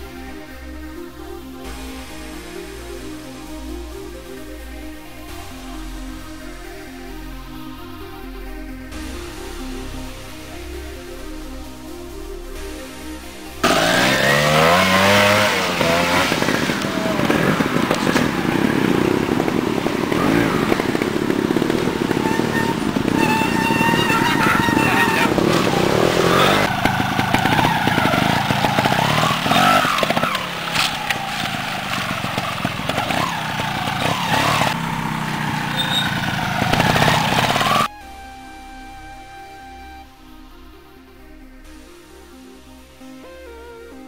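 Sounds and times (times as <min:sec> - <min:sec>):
motorcycle engine revving: 0:13.6 - 0:37.9.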